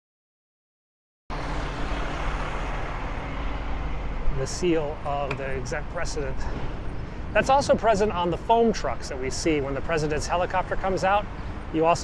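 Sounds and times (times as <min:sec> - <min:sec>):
traffic and wind hiss: 0:01.3 - 0:12.0.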